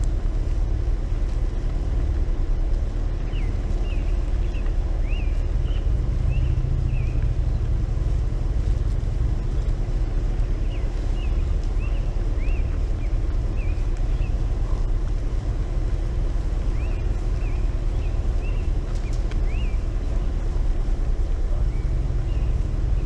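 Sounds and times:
low rumble: 0:00.0 - 0:23.0
songbird chirping: 0:00.0 - 0:23.0.

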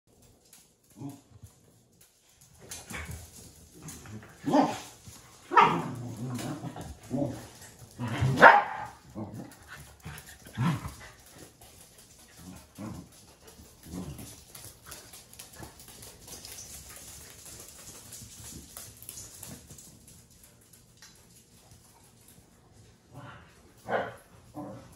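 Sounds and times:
dogs barking: 0:08.2 - 0:09.1.

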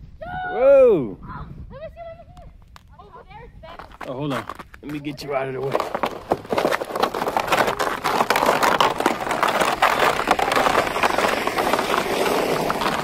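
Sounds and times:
tyres crunching through snow: 0:03.6 - 0:13.0.

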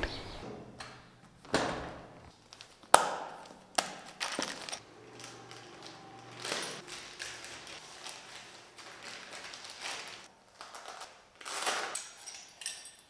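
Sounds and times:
plastic bag crinkling: 0:03.6 - 0:12.0.

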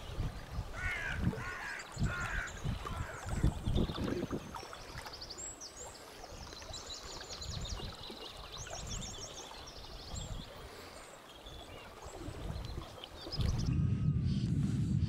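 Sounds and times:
wind on microphone: 0:00.0 - 0:05.1, 0:07.4 - 0:10.9, 0:11.8 - 0:15.0
songbirds singing: 0:00.0 - 0:14.5.

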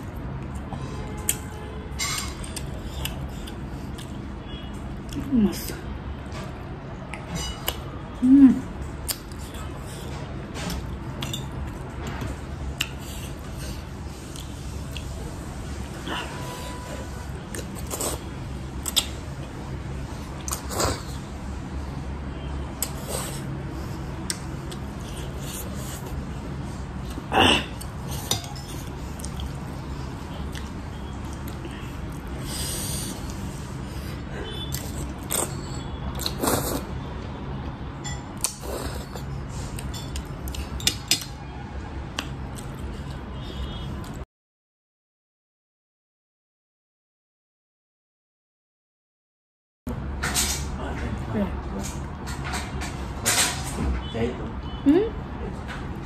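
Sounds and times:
person chewing noodles: 0:02.2 - 0:05.3, 0:09.0 - 0:15.2, 0:17.3 - 0:19.6, 0:20.2 - 0:21.4, 0:22.8 - 0:26.3, 0:27.0 - 0:37.0, 0:38.4 - 0:41.3, 0:42.1 - 0:44.2.

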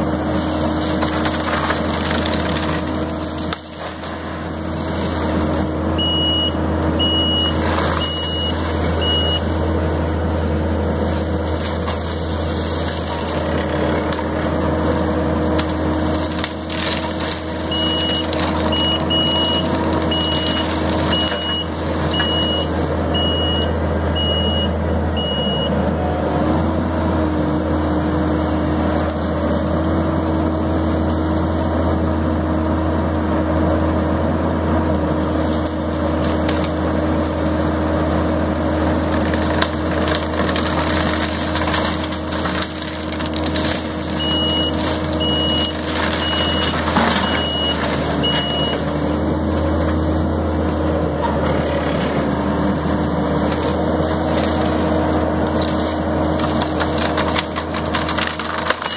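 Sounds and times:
mulcher chewing brush: 0:00.0 - 0:24.4, 0:27.4 - 0:58.9
diesel engine running under load: 0:00.0 - 0:58.9
wood splintering cracks: 0:00.7 - 0:05.4, 0:39.2 - 0:48.6, 0:53.4 - 0:58.9
backup alarm beeping: 0:06.0 - 0:09.5, 0:17.7 - 0:25.8, 0:44.2 - 0:48.8.

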